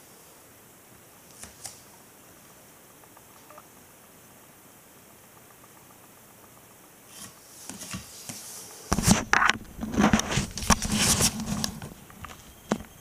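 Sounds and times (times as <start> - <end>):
scrapes and knocks on microphone: 8.9 - 12.0.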